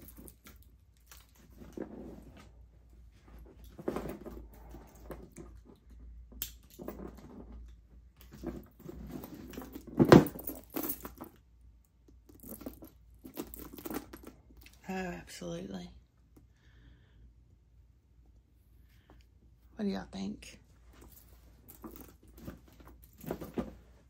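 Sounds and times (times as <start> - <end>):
metal chain clinking: 0.0 - 1.4, 8.7 - 11.4, 12.3 - 14.7, 21.0 - 23.8
handling noise: 0.0 - 11.5, 12.2 - 14.6, 20.8 - 24.0.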